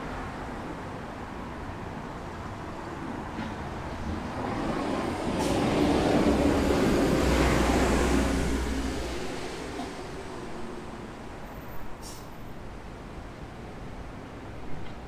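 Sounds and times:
vehicle passing by: 4.5s - 10.8s.

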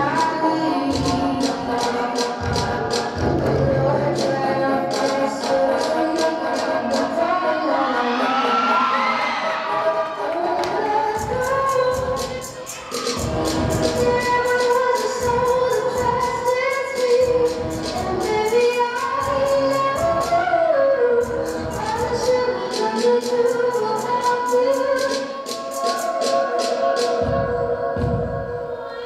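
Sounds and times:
song with held sung notes: 0.0s - 29.0s
quick steady beat: 0.9s - 4.3s, 10.8s - 20.4s, 21.2s - 28.4s.

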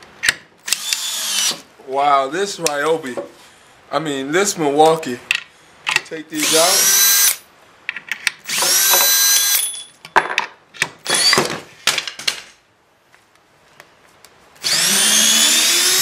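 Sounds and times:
cordless drill whining: 0.7s - 1.6s, 6.4s - 7.4s, 8.5s - 9.6s, 11.1s - 11.4s, 14.6s - 16.0s.

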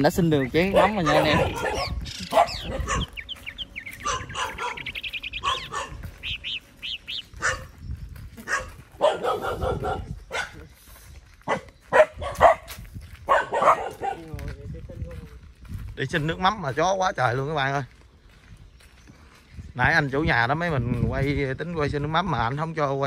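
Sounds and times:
dogs barking: 0.2s - 7.8s, 8.4s - 10.7s, 11.4s - 14.4s.

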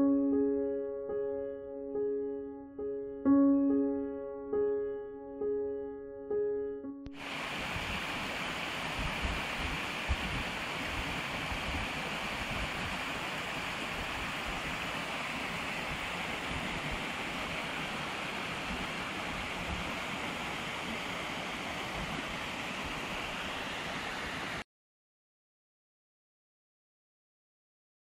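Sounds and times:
piano notes: 0.0s - 7.2s
stream splashing over rocks: 7.2s - 24.6s.

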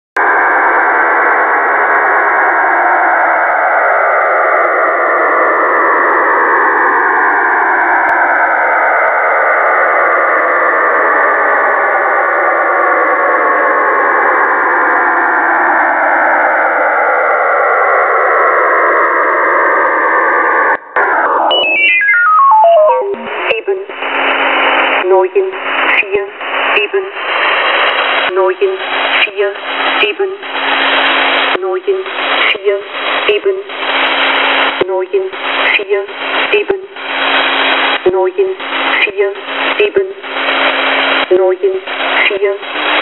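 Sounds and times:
slow downward radio sweeps: 0.2s - 43.0s
radio static hiss: 21.0s - 43.0s.

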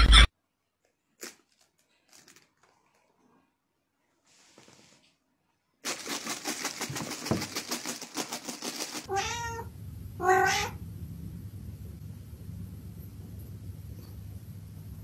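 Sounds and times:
cat meowing: 9.1s - 10.8s.

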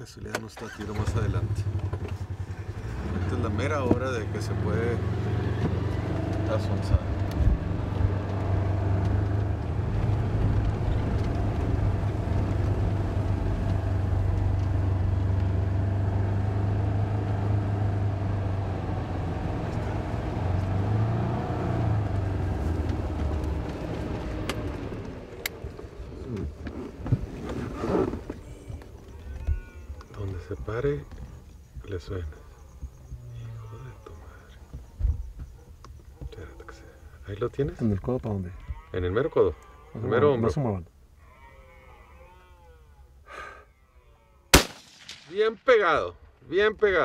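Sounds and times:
cart engine running: 0.6s - 33.2s.

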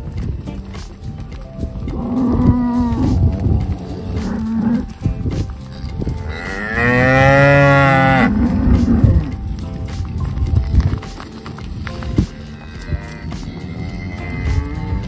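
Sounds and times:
cattle mooing: 1.9s - 9.7s, 12.0s - 15.0s.

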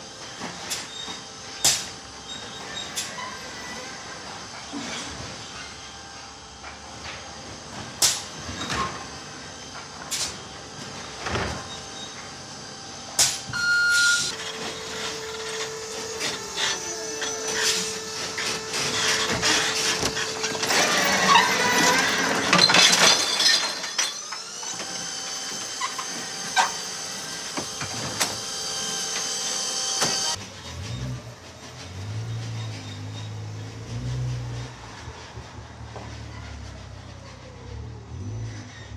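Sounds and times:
electric truck whine: 0.0s - 38.9s
high steady whine: 12.8s - 22.5s
recyclables clattering out: 14.3s - 24.2s.

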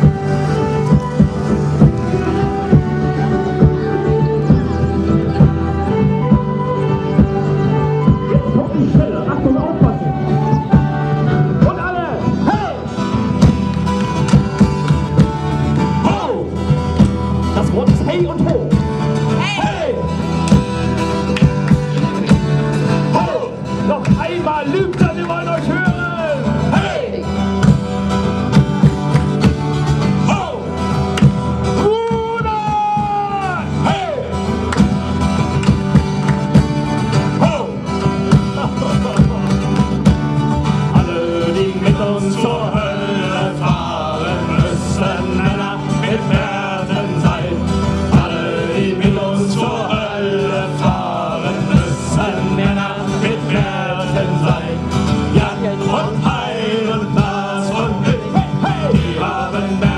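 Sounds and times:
fiddle: 0.0s - 16.0s
keyboard: 0.0s - 59.9s
strummed acoustic guitar: 0.0s - 59.9s
male voices singing: 16.0s - 16.7s, 19.3s - 20.6s, 21.4s - 27.4s, 31.8s - 34.4s, 37.2s - 39.7s, 40.6s - 59.9s.

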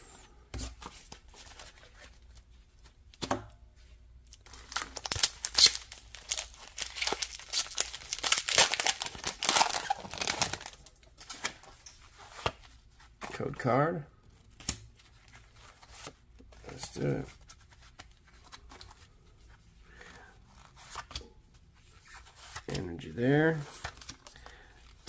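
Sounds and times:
foil wrapper crinkling and tearing: 4.3s - 10.9s.

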